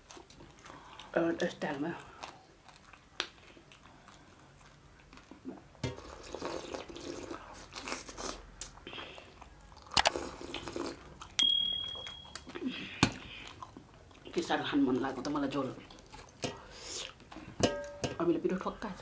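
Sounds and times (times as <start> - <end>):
crunching and chewing: 0.0 - 11.4, 12.0 - 16.4
short high chime: 11.4 - 12.4.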